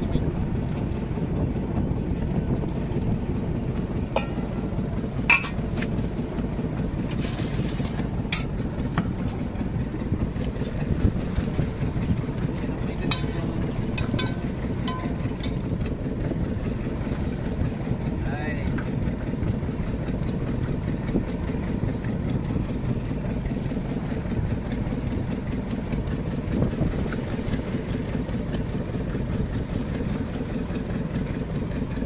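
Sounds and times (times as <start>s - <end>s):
boat engine rumbling: 0.0s - 32.0s
steel pots clinking: 5.3s - 5.6s, 14.0s - 15.6s.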